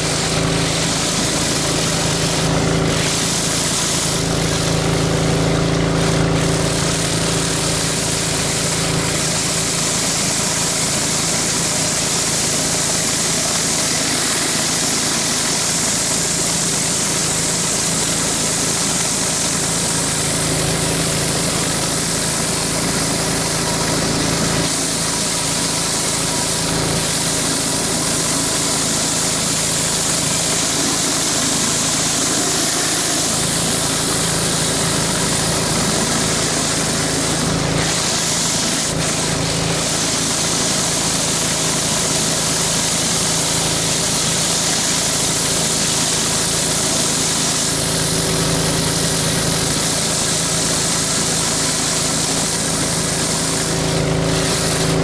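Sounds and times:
pressure washer engine running: 0.0 - 55.0
water blasting onto concrete: 0.0 - 55.0.

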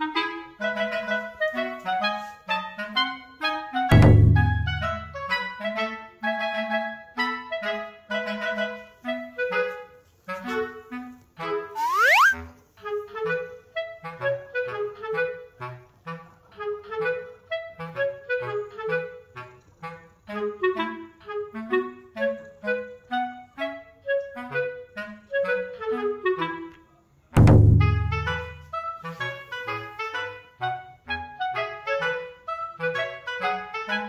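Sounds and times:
bouncy background music: 3.4 - 5.4, 11.6 - 12.5, 27.5 - 29.0
rising whistle sound effect: 11.8 - 12.4.

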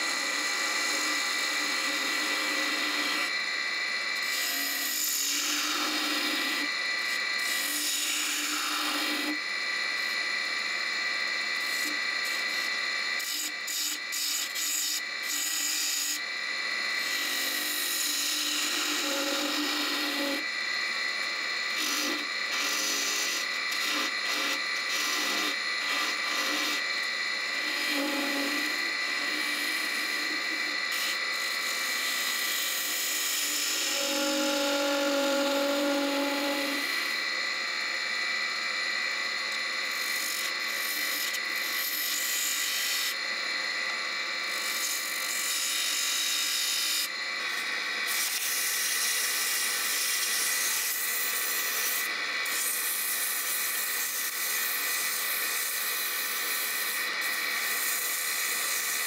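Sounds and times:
turning tool scraping wood: 0.0 - 3.4, 4.2 - 9.4, 11.6 - 16.2, 17.0 - 20.5, 21.7 - 26.8, 27.4 - 37.1, 39.9 - 43.2, 44.5 - 59.0
wood lathe whining: 0.0 - 59.0
sandpaper rubbing spinning wood: 17.2 - 20.4, 21.7 - 26.8, 27.6 - 36.9, 40.0 - 43.1, 48.1 - 59.0.

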